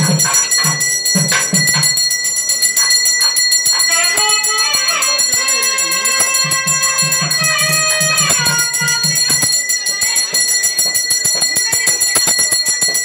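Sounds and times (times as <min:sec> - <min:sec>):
bells ringing rapidly: 0:00.0 - 0:13.0
sliding melody: 0:03.8 - 0:09.9
low pulsing beat: 0:06.2 - 0:09.6.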